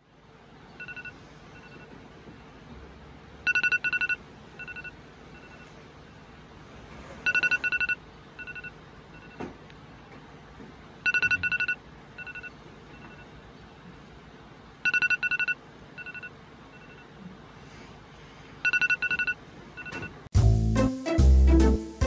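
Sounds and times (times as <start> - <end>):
electronic phone beeping: 0.7 - 2.0, 3.4 - 5.8, 7.2 - 9.4, 11.0 - 13.4, 14.8 - 17.2, 18.6 - 20.2.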